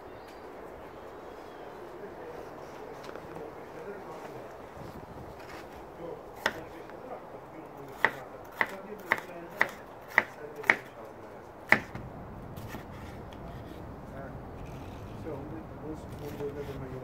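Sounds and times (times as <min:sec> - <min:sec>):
knife striking wooden board: 0:06.4 - 0:06.7, 0:08.0 - 0:10.9, 0:11.7 - 0:12.0.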